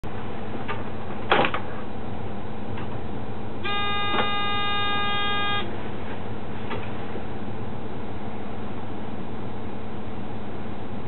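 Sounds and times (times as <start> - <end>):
electronic tone: 3.6 - 5.7.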